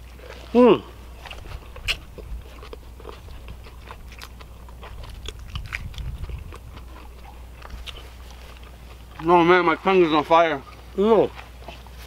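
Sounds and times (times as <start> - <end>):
people chewing: 0.0 - 12.0
wet mouth clicks and smacks: 1.2 - 6.6.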